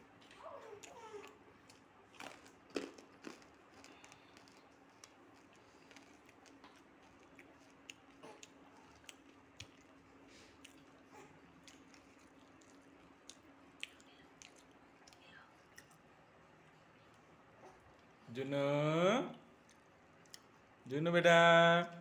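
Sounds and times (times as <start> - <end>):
faint steady hum: 0.0 - 22.0
baby cooing: 0.4 - 1.4.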